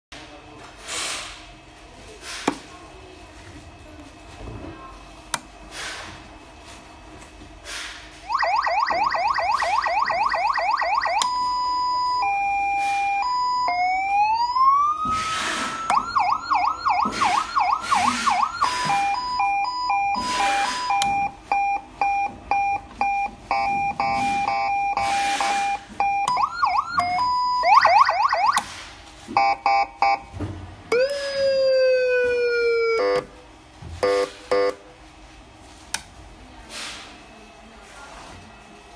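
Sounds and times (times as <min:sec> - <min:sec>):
electronic siren yelp and wail: 0:08.3 - 0:21.0, 0:24.4 - 0:28.6, 0:30.9 - 0:33.2.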